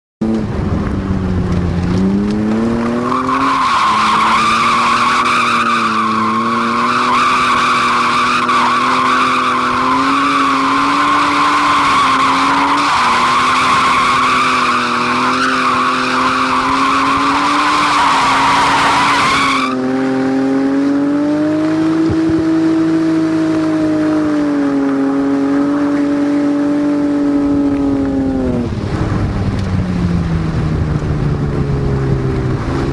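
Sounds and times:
car engine at high revs: 0:00.2 - 0:32.9
tyres squealing: 0:03.0 - 0:19.8.

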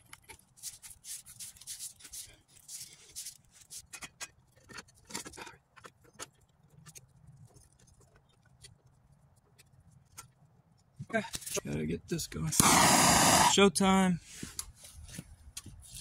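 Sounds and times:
steel pipe fittings clicking and knocking: 0:03.7 - 0:08.8.

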